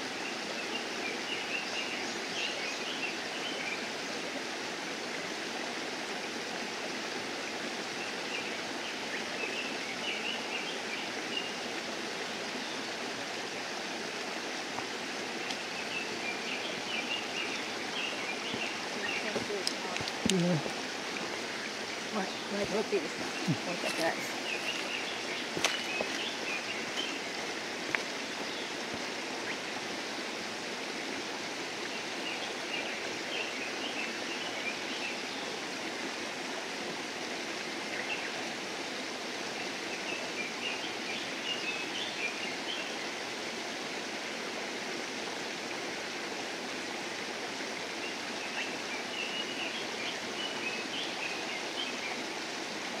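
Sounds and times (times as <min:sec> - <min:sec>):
stream rushing: 0:00.0 - 0:53.0
high twittering bird calls: 0:15.4 - 0:27.4.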